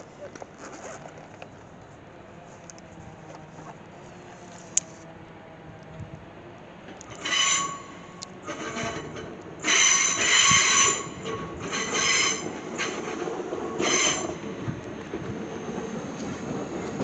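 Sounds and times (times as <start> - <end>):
train rumbling: 0.0 - 17.0
train wheels squealing: 7.1 - 14.5.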